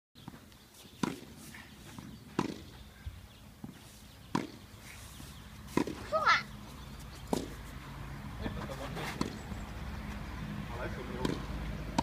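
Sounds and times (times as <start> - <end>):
tennis ball struck by rackets: 0.2 - 2.8, 3.6 - 4.7, 5.7 - 6.5, 7.2 - 7.6, 9.0 - 9.4, 11.1 - 12.0
ball bouncing on court: 2.4 - 2.7, 3.6 - 4.6, 11.2 - 12.0.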